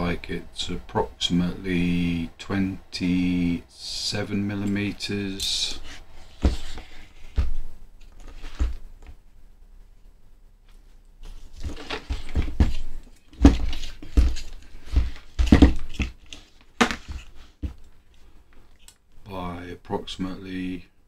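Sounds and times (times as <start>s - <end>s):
rustling: 5.5s - 18.9s
knocks and thuds of handling: 6.3s - 9.2s, 11.2s - 17.9s.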